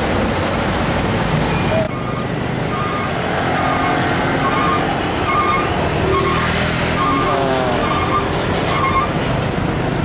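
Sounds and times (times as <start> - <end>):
diesel truck driving past: 0.0 - 10.0
road traffic noise: 0.0 - 10.0.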